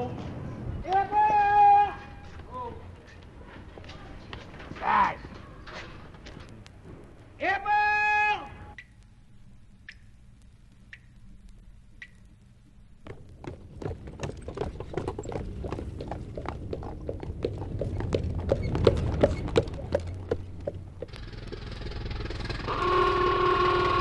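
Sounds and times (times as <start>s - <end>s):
street traffic noise: 0.0s - 7.4s, 14.2s - 24.0s
hooves clip-clopping on pavement: 13.0s - 22.5s
low rumble: 14.8s - 22.7s
vehicle horn: 22.7s - 24.0s.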